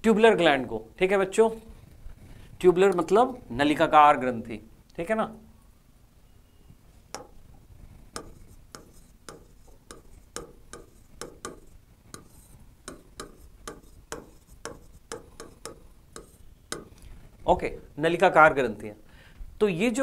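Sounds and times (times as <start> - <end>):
stylus tapping on glass: 7.1 - 7.5, 8.1 - 17.0.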